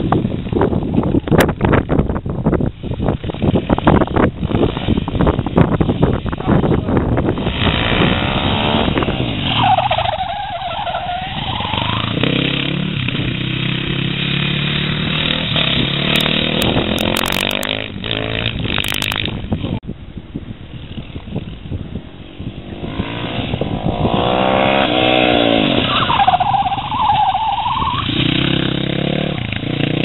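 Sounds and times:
motorcycle engine revving: 6.2s - 10.1s, 11.2s - 19.4s, 22.3s - 27.2s, 27.9s - 30.0s.

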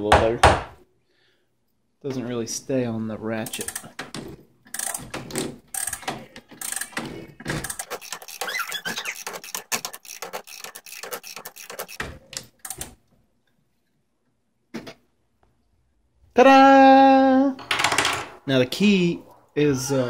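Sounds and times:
ratcheting clicks of clock winding: 5.7s - 7.0s, 7.6s - 12.0s.

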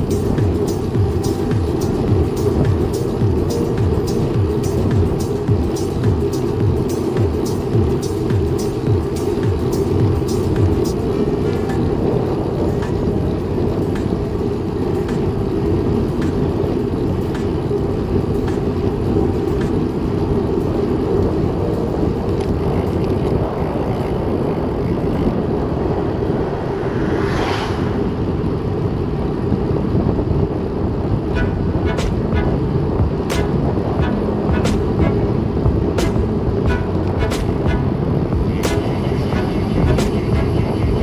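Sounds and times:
wind rumble on microphone: 0.0s - 41.0s
brief whoosh: 26.0s - 28.8s.

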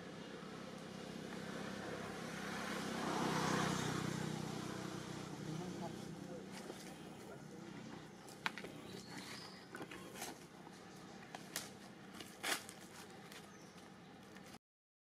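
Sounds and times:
dry leaves crackling underfoot: 8.2s - 14.6s.

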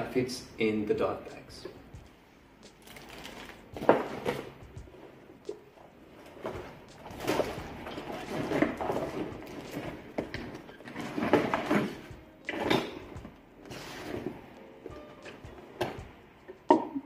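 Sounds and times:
fabric bag rustling: 2.8s - 5.2s, 6.0s - 13.0s.

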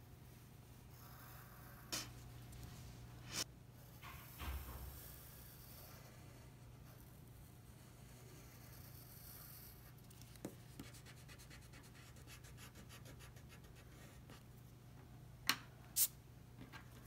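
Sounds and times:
pencil scratching on paper: 5.0s - 10.0s, 10.8s - 14.4s.

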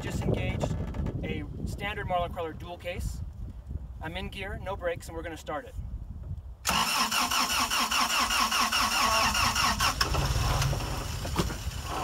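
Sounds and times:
engine nearly catching: 6.7s - 12.0s
starter motor cranking engine: 6.7s - 12.0s.

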